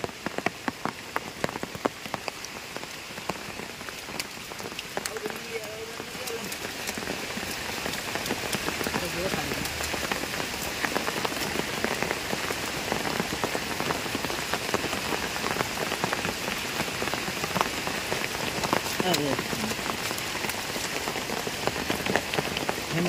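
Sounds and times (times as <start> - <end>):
sharp ticks of raindrops: 0.0 - 23.0
steady rain falling: 0.0 - 23.0.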